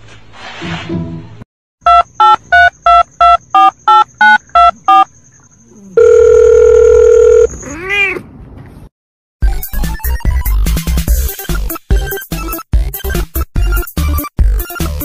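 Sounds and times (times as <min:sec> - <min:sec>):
keypad beeps: 0:01.9 - 0:05.1
telephone ringing tone: 0:01.9 - 0:05.1, 0:06.0 - 0:07.5.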